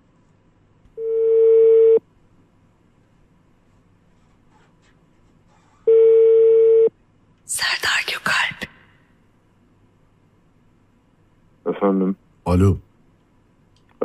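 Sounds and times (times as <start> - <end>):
telephone ringback tone: 1.0 - 2.0, 5.9 - 6.9.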